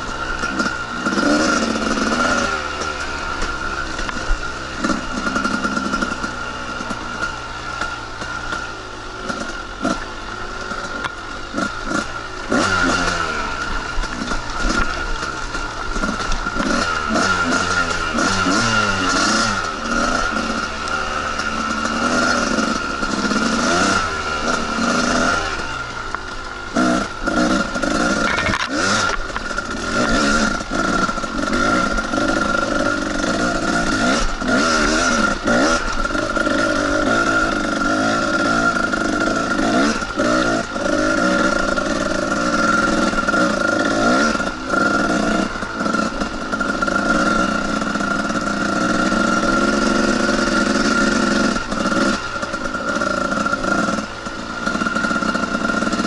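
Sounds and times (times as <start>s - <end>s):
dirt bike engine revving: 0.0s - 56.0s
bike knocks and rattles: 13.7s - 56.0s.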